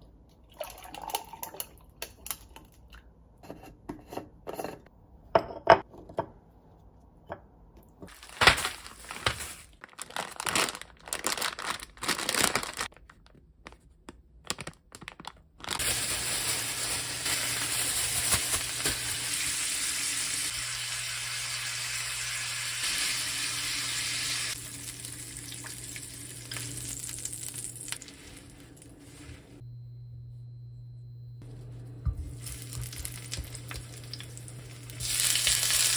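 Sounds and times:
plastic crinkling: 0:08.1 - 0:19.2
meat sizzling in a skillet: 0:15.8 - 0:28.0, 0:32.4 - 0:35.9.

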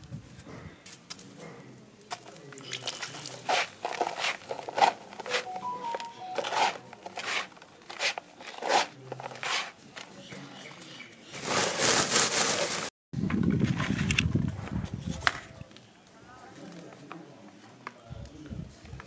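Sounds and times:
woven sack rustling: 0:02.8 - 0:05.5, 0:11.3 - 0:12.9.

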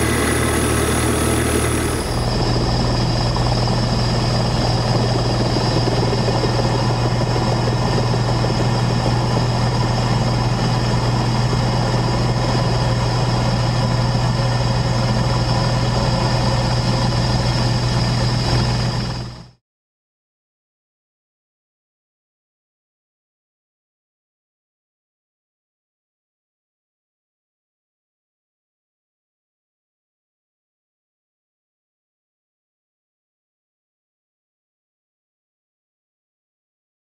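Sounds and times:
aircraft motor and rotor noise: 0:00.0 - 0:19.6.

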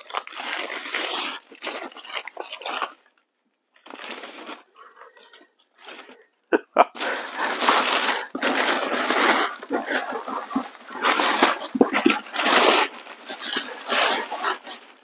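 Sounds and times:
packaging crinkling and tearing: 0:00.0 - 0:06.2, 0:06.8 - 0:15.0.

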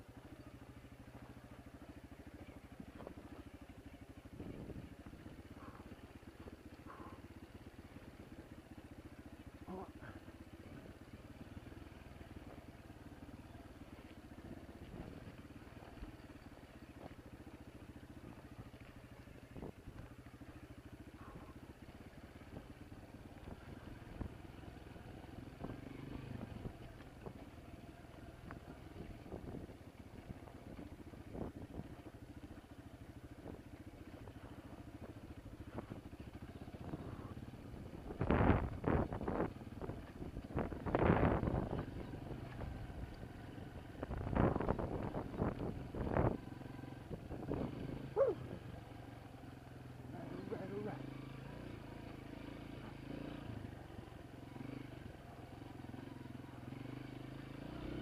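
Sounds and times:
dirt bike engine running: 0:00.0 - 0:58.0
wind on microphone: 0:38.0 - 0:42.2, 0:44.0 - 0:46.4.

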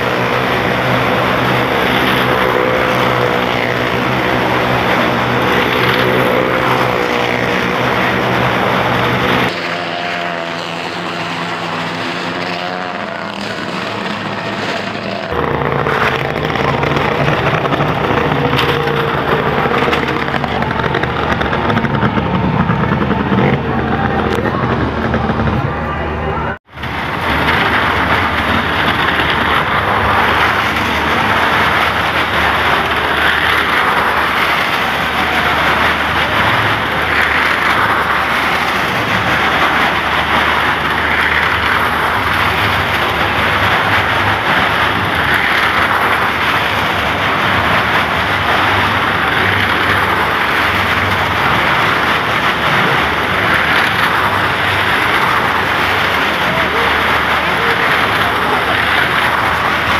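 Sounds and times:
car engines on wooden wall: 0:00.0 - 0:59.9.

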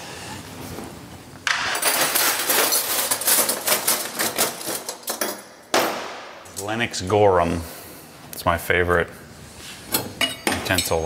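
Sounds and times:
metal cutlery clinking: 0:01.6 - 0:05.5.

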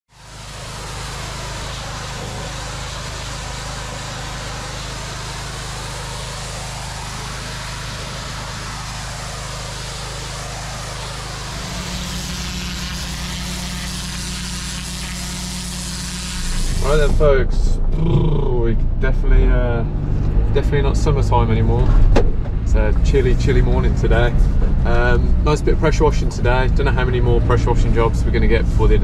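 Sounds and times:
pressure washer spray hissing: 0:00.1 - 0:17.4
pump engine droning: 0:00.1 - 0:29.0.

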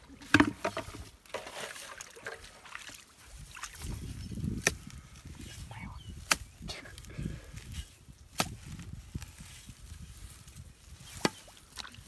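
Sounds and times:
digging tool chopping into mud: 0:04.5 - 0:04.9, 0:06.2 - 0:06.5, 0:08.3 - 0:08.8, 0:11.0 - 0:12.0.

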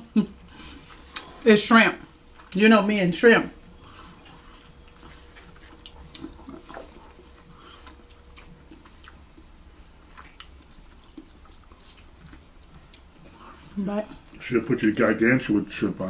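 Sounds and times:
soft chewing: 0:00.2 - 0:02.7, 0:03.5 - 0:15.9
mouth smacks: 0:05.8 - 0:09.2.

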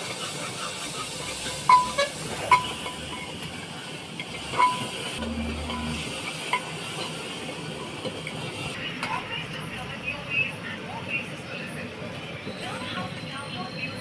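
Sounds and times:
stove hissing: 0:00.0 - 0:08.8.

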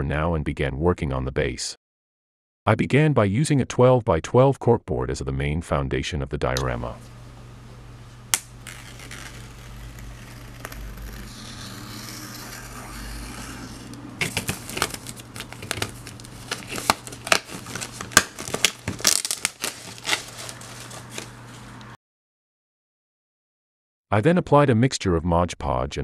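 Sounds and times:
plastic wrap rustling and crinkling: 0:08.6 - 0:21.9.

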